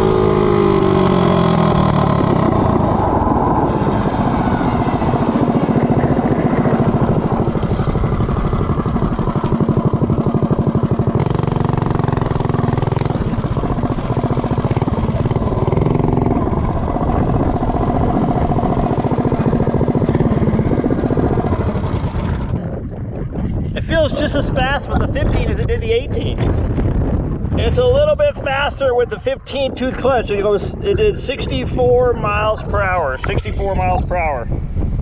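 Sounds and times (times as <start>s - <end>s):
minibike engine running: 0.0s - 3.4s, 4.1s - 22.8s.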